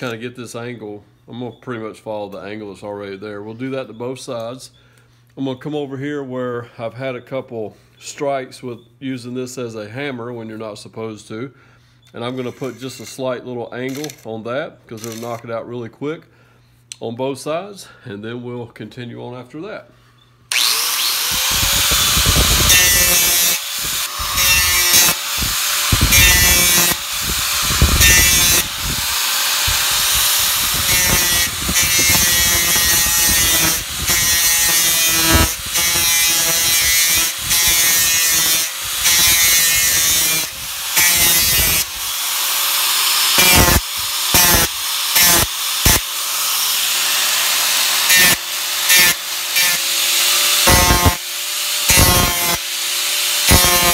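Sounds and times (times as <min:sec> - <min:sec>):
angle grinder grinding steel: 0:20.5 - 0:53.9.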